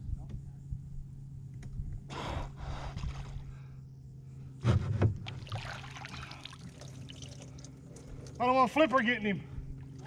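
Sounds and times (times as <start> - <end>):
water dripping and sloshing: 5.2 - 8.5.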